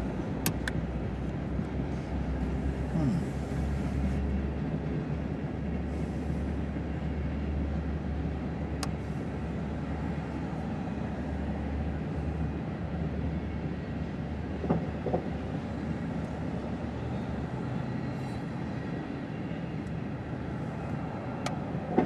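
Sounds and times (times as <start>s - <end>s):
train wheels rumbling on rails: 14.1s - 19.4s.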